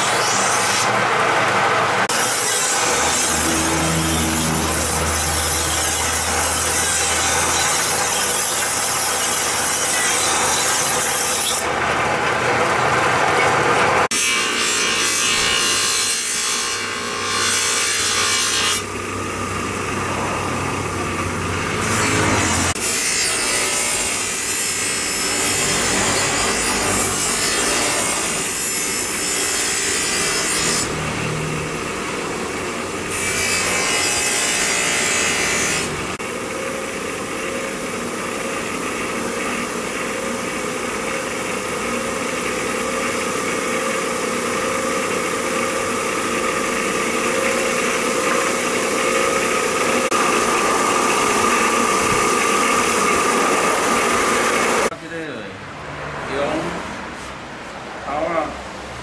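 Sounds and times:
steel scraping on grinding wheel: 2.0s - 36.2s.

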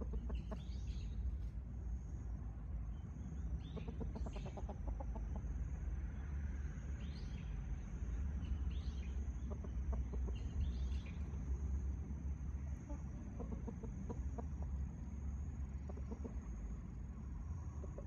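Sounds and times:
chickens clucking: 0.0s - 1.6s, 3.6s - 5.7s, 9.3s - 11.4s, 12.7s - 15.0s, 15.7s - 16.8s, 17.7s - 18.0s.

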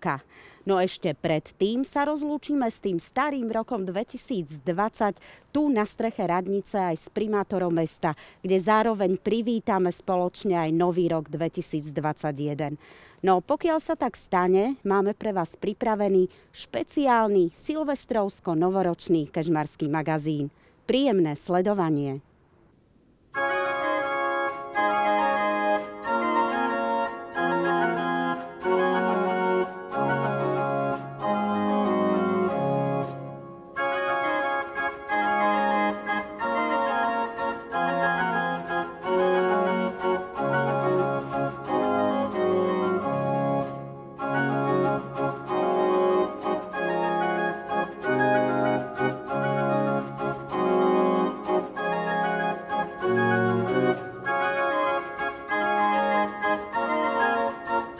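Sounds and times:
pipe organ chords: 23.4s - 57.9s.

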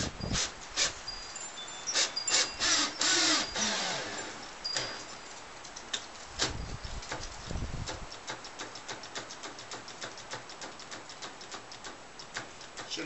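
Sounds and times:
drill clicking: 2.0s - 4.2s
cordless drill motor: 2.0s - 4.9s.

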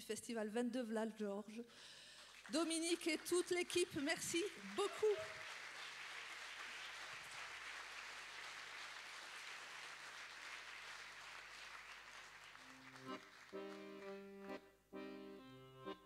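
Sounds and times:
audience applause: 2.2s - 14.2s
accordion playing: 12.6s - 16.0s.

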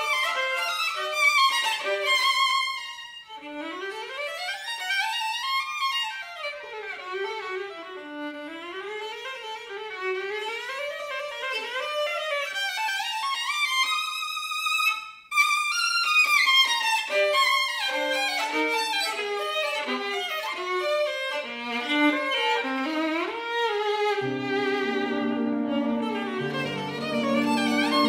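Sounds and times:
violin playing: 0.0s - 5.4s, 15.4s - 28.0s
piano chords: 24.2s - 28.0s.

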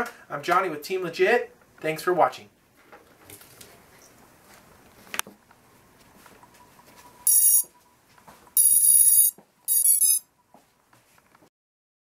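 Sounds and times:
electronic beeps: 7.1s - 7.8s, 8.6s - 10.3s.

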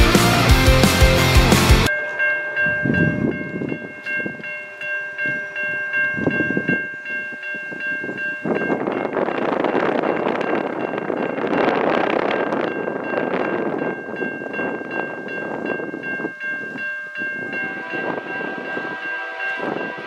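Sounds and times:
rock music: 0.0s - 1.9s
gusty wind: 2.6s - 4.5s, 5.2s - 20.0s
locomotive air horn chord: 17.6s - 20.0s.

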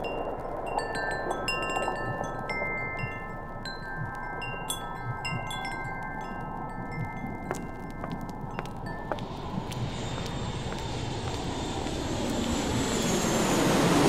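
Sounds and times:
chimes ringing: 0.0s - 9.3s
low rushing hiss: 9.2s - 14.0s.

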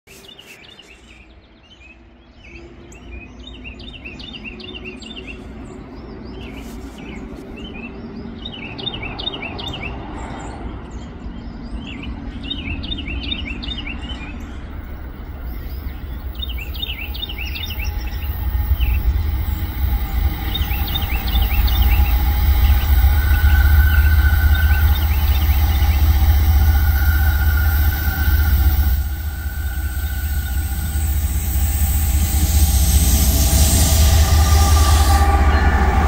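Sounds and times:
songbird chirping: 0.1s - 36.0s
diesel locomotive rumble: 10.5s - 36.0s.

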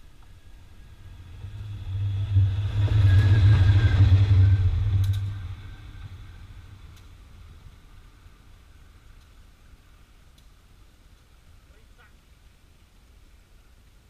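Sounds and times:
diesel locomotive passing: 0.0s - 9.1s.

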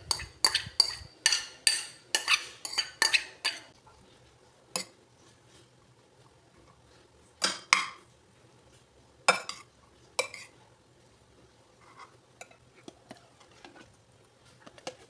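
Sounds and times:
metal spoon clinking glass bowl: 0.1s - 3.7s.

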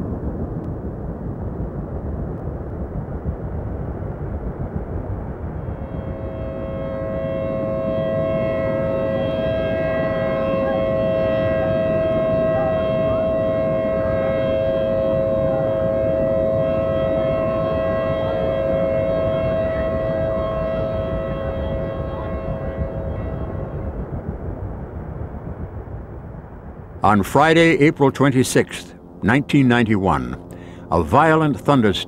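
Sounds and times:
low rushing noise: 0.0s - 32.0s
two-note warning siren: 5.4s - 25.9s, 27.0s - 32.0s.

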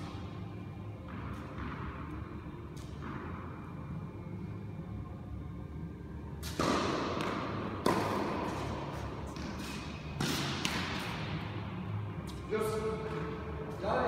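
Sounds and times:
tennis ball bouncing on hard court: 0.9s - 3.8s, 6.4s - 11.4s
tennis ball struck by racket: 1.1s - 2.2s, 6.4s - 11.4s.

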